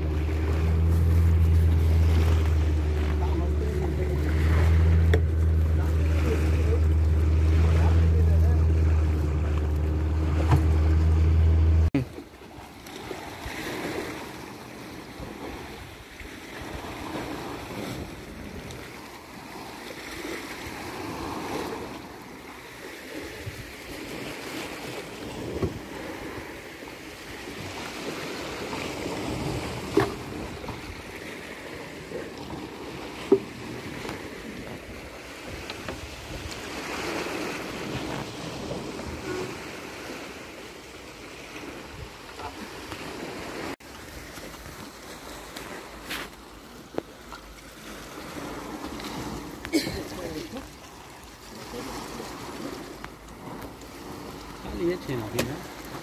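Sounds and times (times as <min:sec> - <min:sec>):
boat engine running: 0:00.0 - 0:12.2, 0:24.1 - 0:56.0
water lapping and sloshing: 0:00.0 - 0:56.0.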